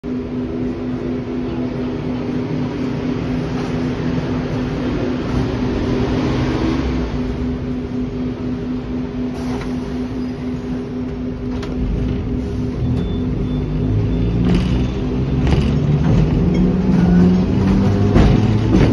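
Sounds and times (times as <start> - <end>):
electric tram humming: 0.0 - 18.9
street traffic: 0.0 - 18.9.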